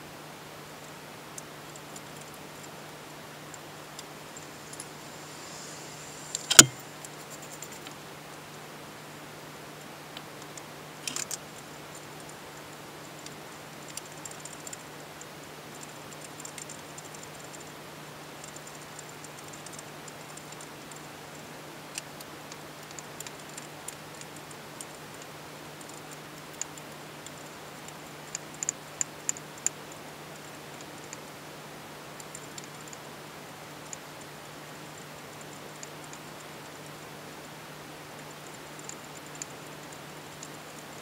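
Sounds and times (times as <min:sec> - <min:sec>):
steady low hum: 0:00.0 - 0:41.0
light metallic clicks and taps: 0:06.3 - 0:06.8.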